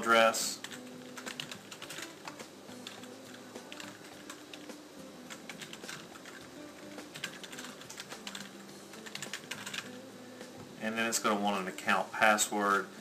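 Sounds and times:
computer keyboard typing: 0.6s - 10.0s.

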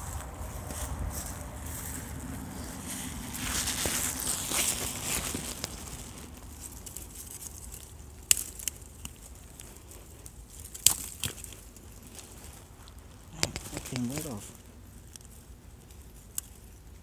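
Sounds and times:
dry brush crackling and rustling: 0.0s - 17.0s
sharp snaps of plants: 3.3s - 7.0s, 12.9s - 14.4s.

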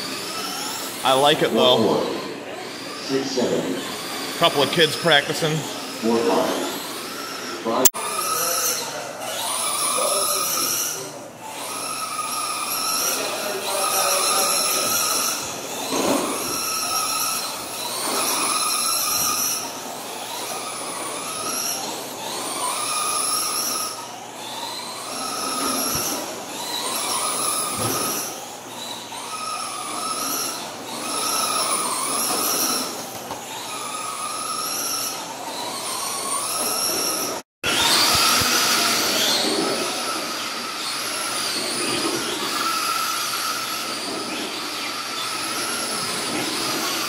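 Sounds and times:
rc car motors whining: 0.0s - 47.0s.

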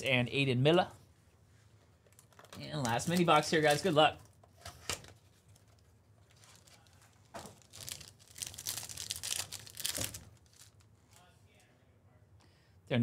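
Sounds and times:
foil wrapper crinkling and tearing: 6.2s - 10.9s.

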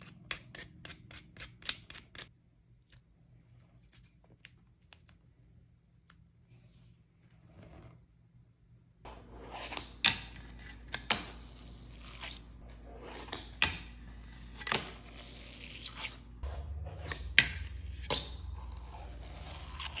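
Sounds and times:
fingerboard scraping and rolling: 7.3s - 8.0s, 9.1s - 20.0s.

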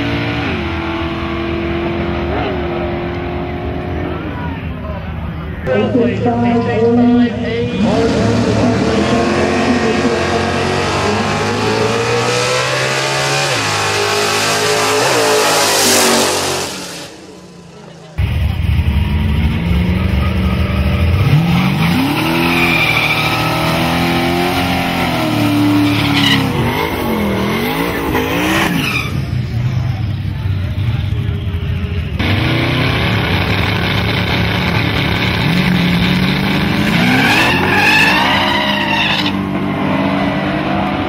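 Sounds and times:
racing car engines revving: 0.0s - 41.0s
tyre squeal: 21.2s - 27.8s, 28.4s - 29.4s, 36.9s - 39.4s.

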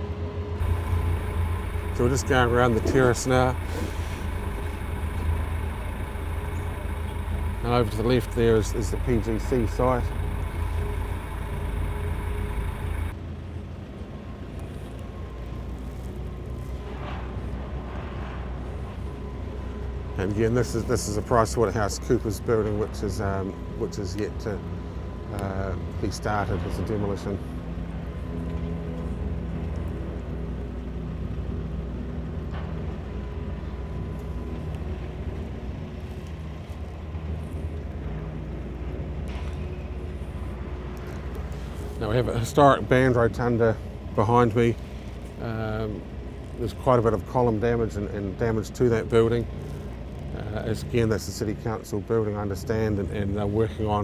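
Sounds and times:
faint high whine: 0.0s - 13.2s
vehicle engine and tyres rumbling: 0.0s - 54.0s
higher hiss: 0.6s - 13.1s.

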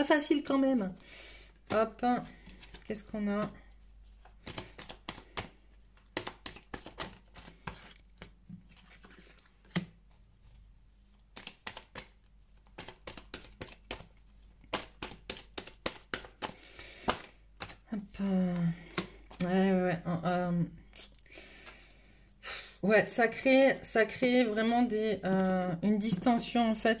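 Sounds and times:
cards being shuffled: 1.6s - 19.6s.

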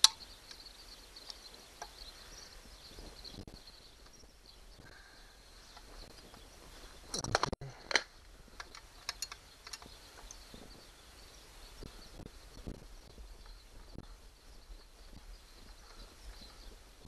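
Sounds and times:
light ticks: 0.0s - 2.2s.

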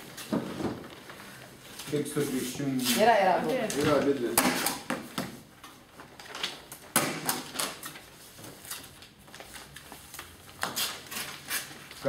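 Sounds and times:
paper envelopes rustling: 5.6s - 12.0s.

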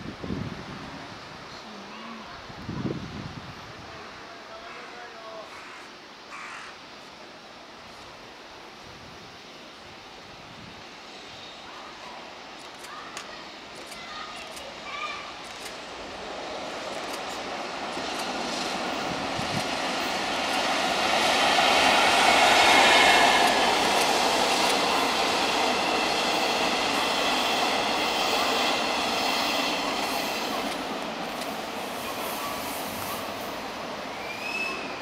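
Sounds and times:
train wheels rumbling on rails: 11.9s - 35.0s.

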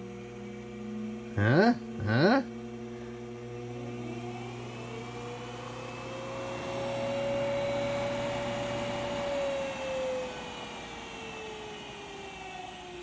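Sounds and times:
low hum: 0.0s - 9.4s
treadmill motor whine: 0.0s - 13.0s.

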